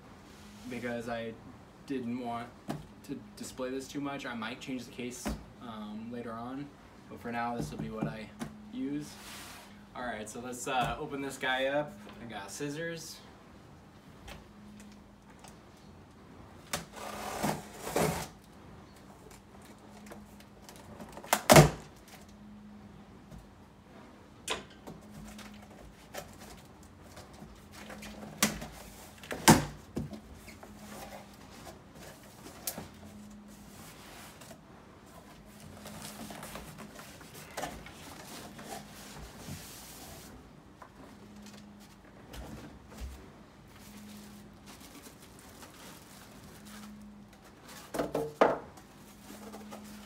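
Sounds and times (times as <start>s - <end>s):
plastic bag rustling: 43.1s - 48.0s.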